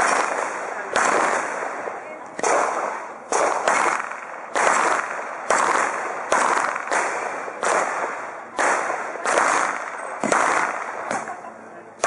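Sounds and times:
pistol shots: 0.0s - 11.4s.

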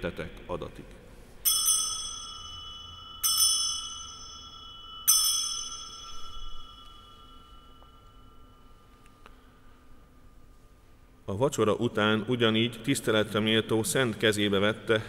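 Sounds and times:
altar bell ringing: 1.4s - 10.7s.

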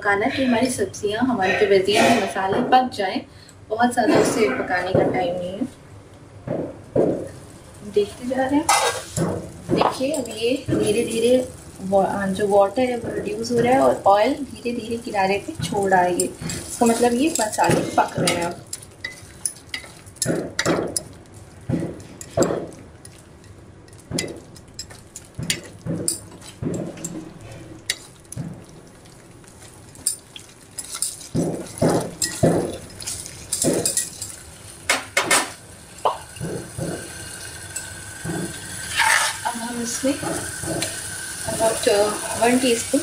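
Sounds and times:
wooden spatula scraping a pan: 8.6s - 9.2s, 15.6s - 20.6s, 38.3s - 41.0s.

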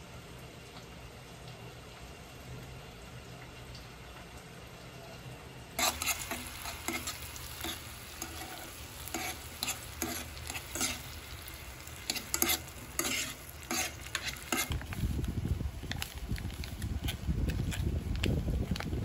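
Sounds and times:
soft sizzle: 0.0s - 19.0s
metal spoon scraping a saucepan: 5.8s - 14.8s.

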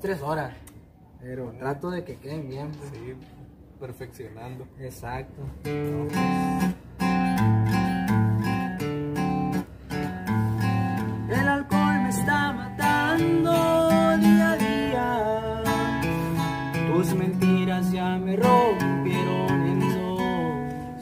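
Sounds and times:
acoustic guitar strumming: 5.6s - 21.0s.

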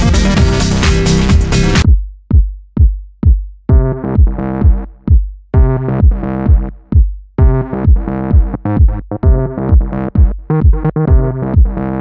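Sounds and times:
synth chords: 0.0s - 1.9s
deep kick drum hits: 0.0s - 11.8s.

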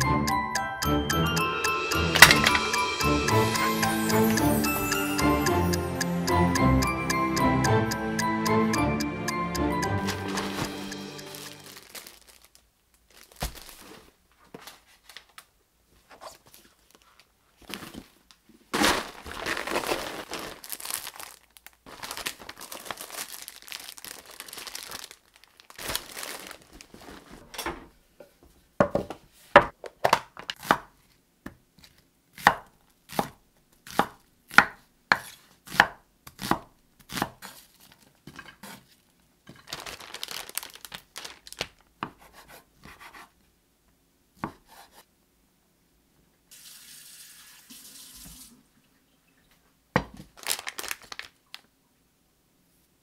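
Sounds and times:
rustling and crinkling: 10.3s - 28.0s, 37.6s - 41.9s, 50.2s - 51.7s
knife chopping on cutting board: 32.4s - 37.6s, 42.0s - 43.3s, 44.4s - 45.0s.

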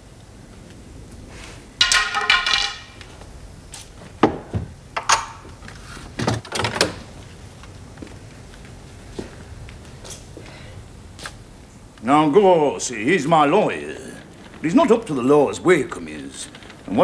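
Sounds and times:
loud ringing metal clatter: 1.8s - 3.0s
sword clinking and knocking: 1.8s - 3.0s.

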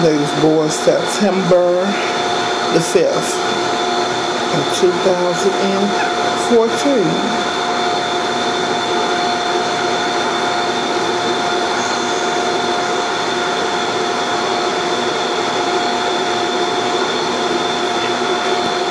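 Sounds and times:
small electric motor whirring: 0.0s - 18.9s.

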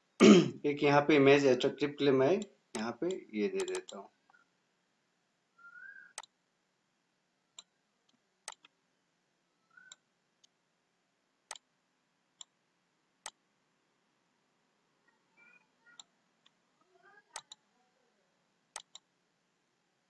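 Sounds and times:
mouse buttons clicking: 2.4s - 4.4s, 5.8s - 6.4s, 7.6s - 8.8s, 9.7s - 10.5s, 17.3s - 17.6s, 18.8s - 19.1s.

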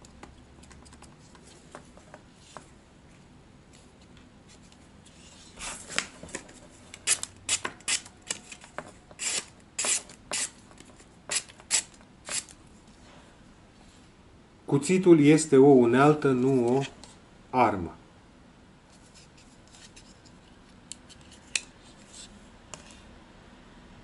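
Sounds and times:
knife blade cutting paper: 7.0s - 10.6s, 11.3s - 12.6s.

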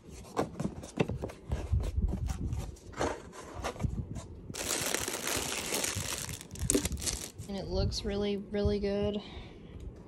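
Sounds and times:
plastic bag crinkling: 4.5s - 7.5s.

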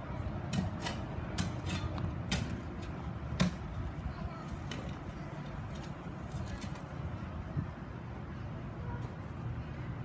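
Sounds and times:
low background noise: 0.0s - 10.0s.

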